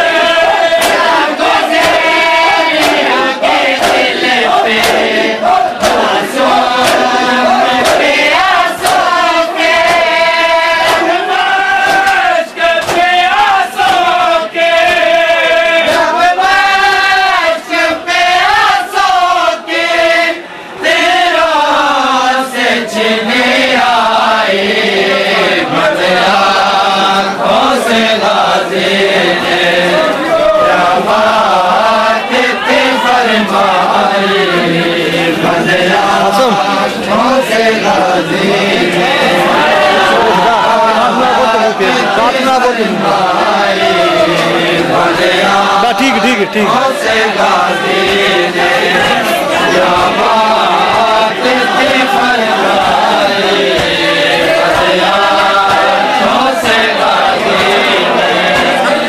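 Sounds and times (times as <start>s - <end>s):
men chanting a lament in chorus: 0.0s - 59.0s
chest-beating slaps: 0.7s - 14.2s.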